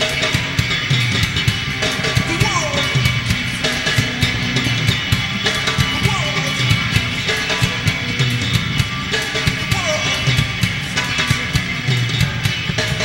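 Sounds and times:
bass guitar: 0.0 - 13.0
drum kit beat: 0.0 - 13.0
electric guitar: 0.0 - 13.0.

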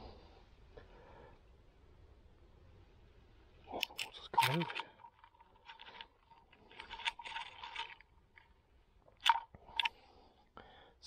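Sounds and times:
fingers rustling on fish and lure: 3.8 - 8.6.

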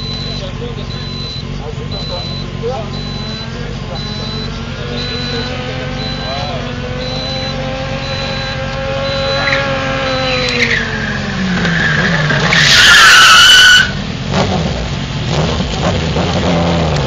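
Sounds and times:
engine revving high: 0.0 - 17.0
loud tyre squeal: 7.5 - 14.0.

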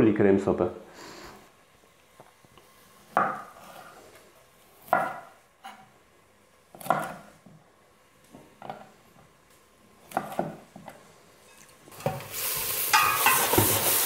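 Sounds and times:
onions sizzling in a pot: 11.4 - 14.0.

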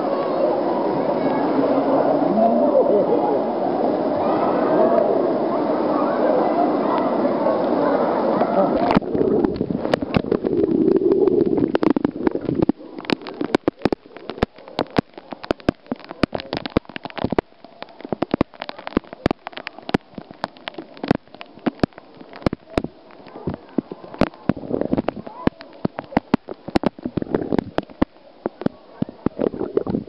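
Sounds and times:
water spray splashing on pool: 3.9 - 30.0
droplets tapping near microphone: 8.4 - 30.0.

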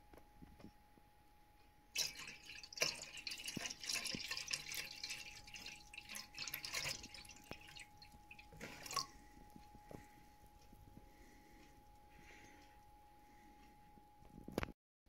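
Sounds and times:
water splashing and dripping: 2.0 - 10.0.

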